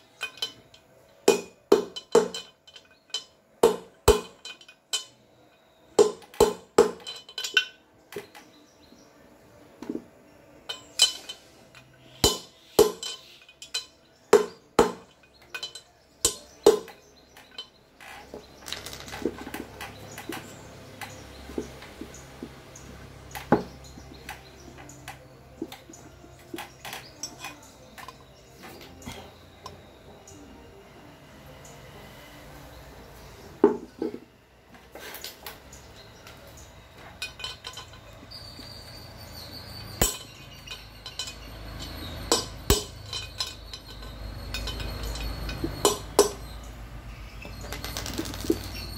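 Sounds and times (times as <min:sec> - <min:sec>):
light metal clinks: 0:00.0 - 0:30.4, 0:35.0 - 0:48.9.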